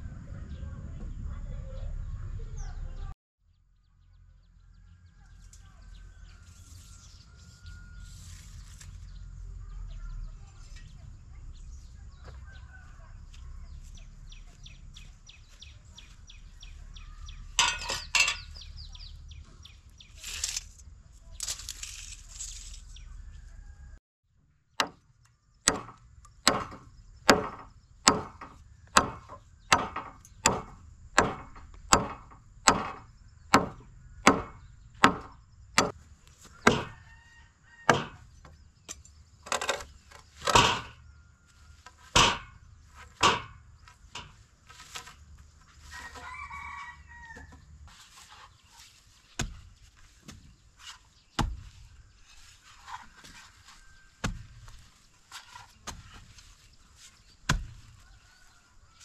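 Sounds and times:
rooster crowing: 0:06.0 - 0:08.3, 0:12.2 - 0:13.4, 0:23.2 - 0:24.0, 0:36.4 - 0:38.2, 0:45.8 - 0:47.7, 0:58.0 - 0:59.0.

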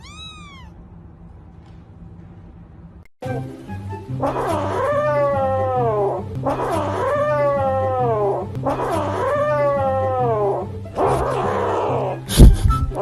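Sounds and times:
kitten yowling: 0:00.0 - 0:00.8, 0:04.3 - 0:06.0.

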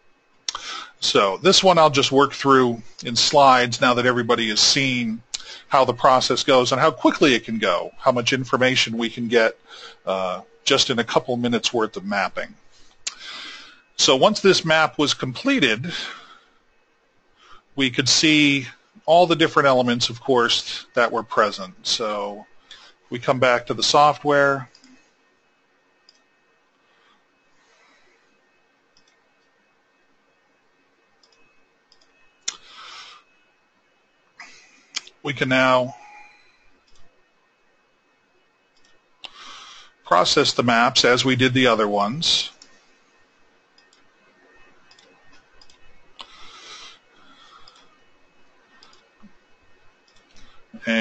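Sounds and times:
computer mouse clicking: 0:28.9 - 0:29.5, 0:31.2 - 0:32.6, 0:36.8 - 0:37.1, 0:38.8 - 0:39.0, 0:43.8 - 0:44.1, 0:44.8 - 0:46.3, 0:47.6 - 0:47.9, 0:48.7 - 0:49.4, 0:50.0 - 0:50.5.

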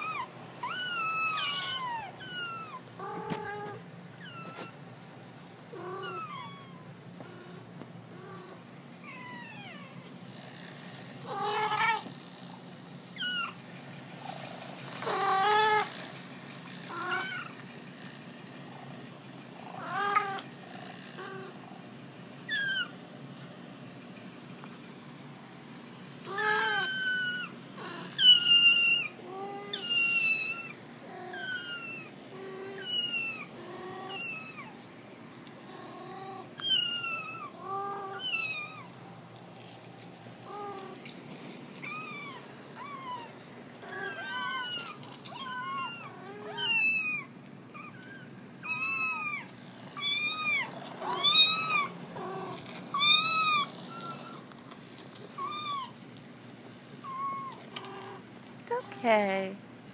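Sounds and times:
cat meowing: 0:00.0 - 0:04.8, 0:05.7 - 0:06.9, 0:26.3 - 0:34.8, 0:41.8 - 0:54.4.

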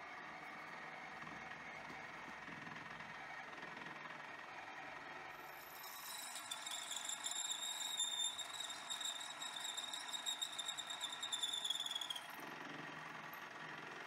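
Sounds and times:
drill squealing through steel: 0:05.4 - 0:12.4.

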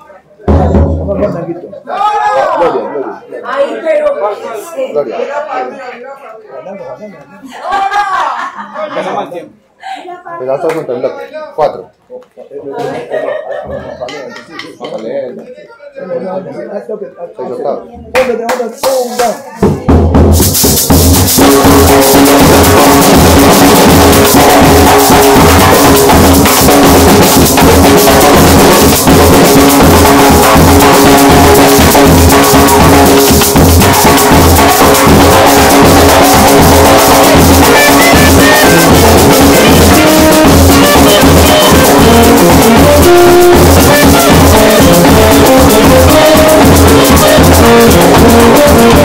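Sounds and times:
band music with steady beat: 0:18.6 - 0:49.0.

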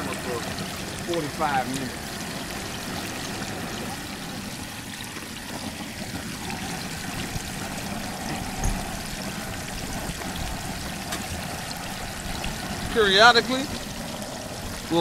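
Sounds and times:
oil sizzling and bubbling: 0:00.0 - 0:15.0
low thump: 0:08.3 - 0:09.0.

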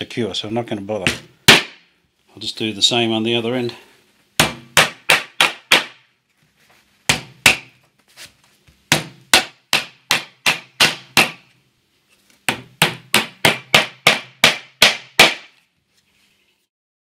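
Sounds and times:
hammer striking nails into wood: 0:01.1 - 0:01.8, 0:04.4 - 0:06.1, 0:07.1 - 0:07.8, 0:08.9 - 0:11.5, 0:12.5 - 0:15.6.

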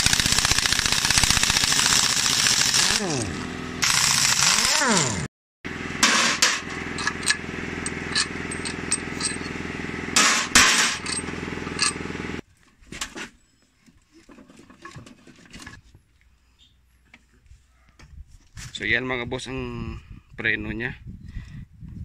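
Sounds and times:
metal parts clinking: 0:06.0 - 0:09.6, 0:10.2 - 0:12.0
impact wrench hammering: 0:10.2 - 0:12.0.

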